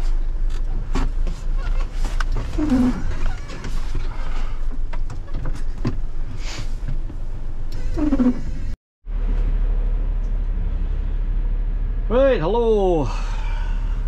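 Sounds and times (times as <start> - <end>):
windscreen wipers: 0.0 - 9.4
diesel engine rumble: 0.0 - 14.0
short squeak: 1.6 - 4.6, 7.7 - 8.8.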